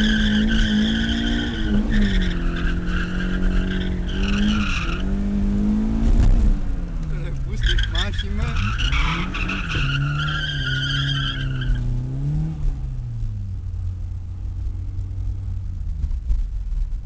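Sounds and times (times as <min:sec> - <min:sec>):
car engine running: 0:00.0 - 0:17.0
tyres squealing: 0:07.5 - 0:11.8.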